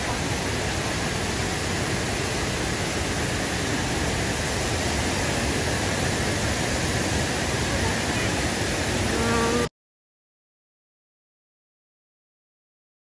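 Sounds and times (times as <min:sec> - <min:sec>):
waterfall pouring into pool: 0:00.0 - 0:09.1.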